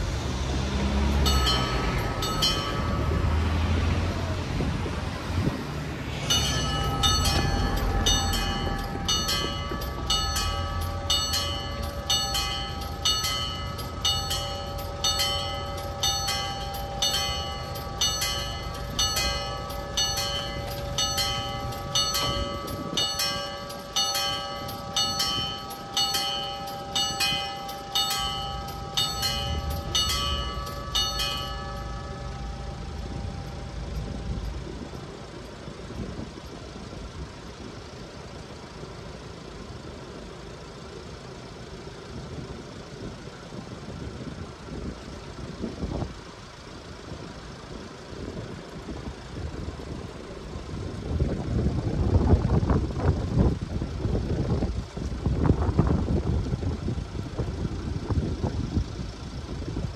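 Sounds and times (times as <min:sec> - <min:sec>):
road traffic rumble: 0:00.0 - 0:59.9
level crossing bell ringing: 0:01.2 - 0:03.6, 0:06.3 - 0:35.2.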